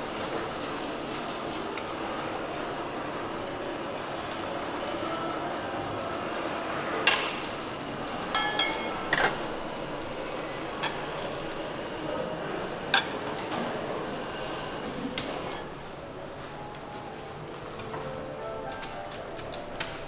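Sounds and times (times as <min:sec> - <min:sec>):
steady background hiss: 0:00.0 - 0:20.0
metal ladle clinking on bowls: 0:08.3 - 0:09.3.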